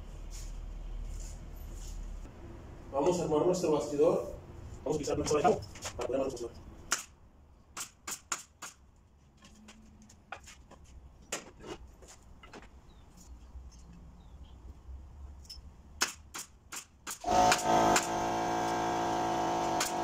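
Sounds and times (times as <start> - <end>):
nail gun firing: 6.9 - 7.2, 7.8 - 8.8, 16.0 - 20.0
electric motor running: 17.3 - 20.0.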